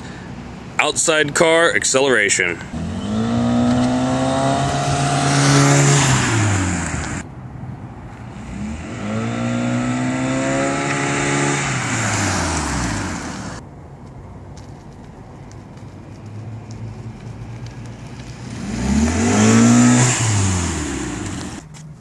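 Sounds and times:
car engine droning past: 8.3s - 13.6s.

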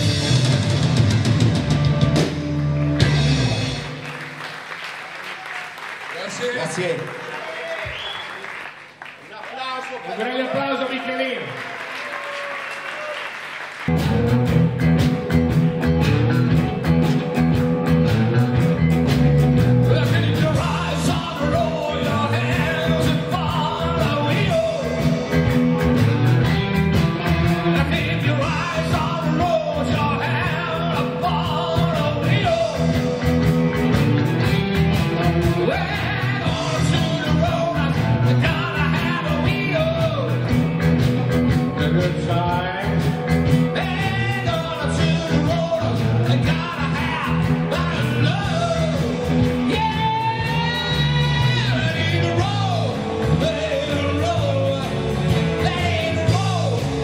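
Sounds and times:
rock band playing: 0.0s - 7.1s, 11.6s - 57.0s
man singing: 19.8s - 26.5s, 27.2s - 33.4s, 35.2s - 40.5s, 41.5s - 57.0s.

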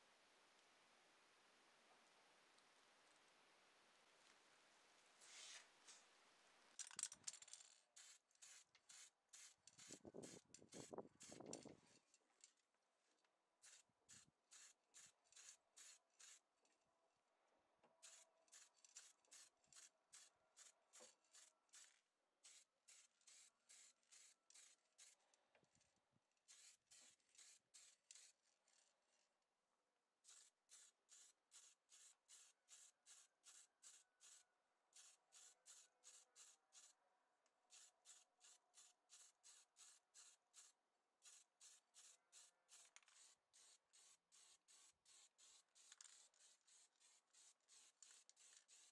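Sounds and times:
spray paint hissing bursts: 8.0s - 11.5s, 13.6s - 16.4s, 18.0s - 21.8s, 22.4s - 25.2s, 26.5s - 28.3s, 30.2s - 34.4s, 35.0s - 36.9s, 37.7s - 48.9s.

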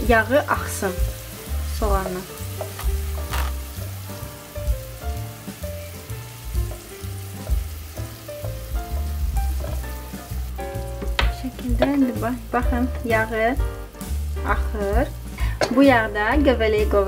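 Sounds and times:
onions sizzling in hot oil: 0.0s - 17.0s
soft background music: 0.0s - 17.0s
spatula pushing food in pot: 1.1s - 4.2s.

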